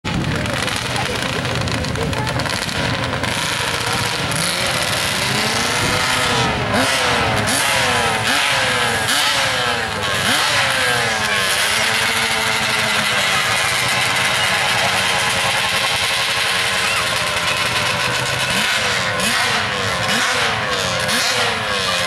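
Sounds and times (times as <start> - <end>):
quad engines revving: 0.0 - 22.0.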